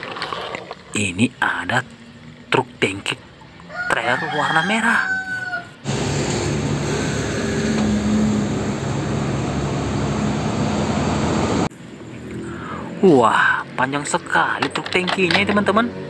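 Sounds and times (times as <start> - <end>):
tyre and road noise: 0.0 - 16.0
rooster crowing: 3.7 - 5.9
truck diesel engine running: 5.8 - 11.7.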